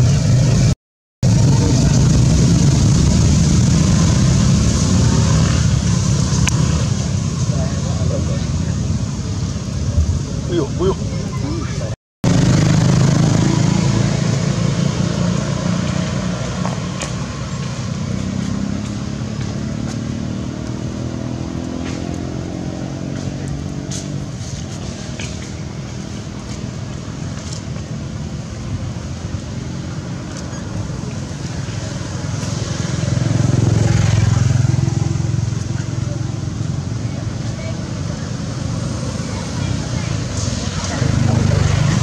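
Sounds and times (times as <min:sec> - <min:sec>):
vehicle engine droning: 0:00.0 - 0:42.0.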